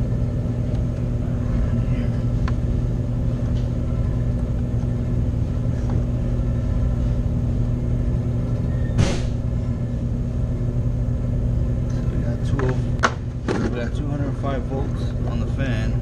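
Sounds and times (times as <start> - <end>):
condensing unit humming: 0.0 - 16.0.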